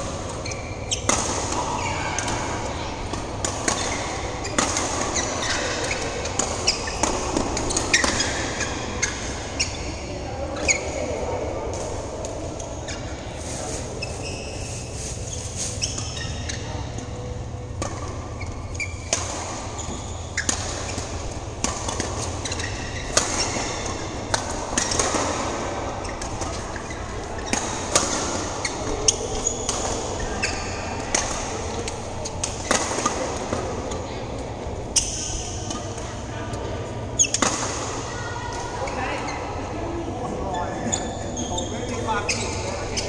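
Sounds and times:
badminton rackets hitting shuttlecocks: 0.0s - 10.0s, 17.6s - 38.7s
sneakers squeaking on court: 0.0s - 11.2s, 12.7s - 34.1s, 34.9s - 38.1s, 40.2s - 43.0s.

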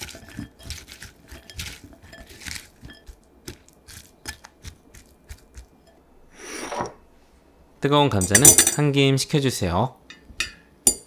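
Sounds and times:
vegetables rustling in a bowl: 0.0s - 5.8s.

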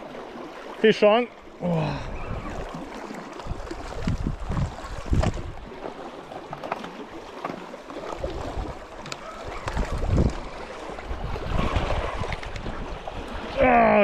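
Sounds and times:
wind on microphone: 2.0s - 2.8s, 3.4s - 5.7s, 8.2s - 13.7s
waves washing against rocks: 2.4s - 14.0s.

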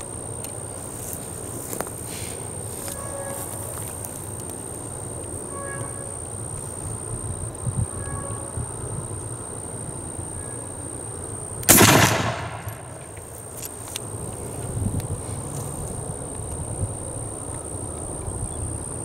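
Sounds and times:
rifle shot with echo: 11.7s - 13.2s.

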